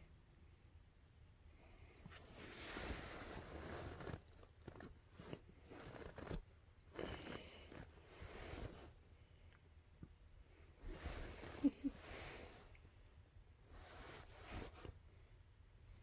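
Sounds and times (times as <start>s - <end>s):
fabric and fur rustling: 2.2s - 6.4s.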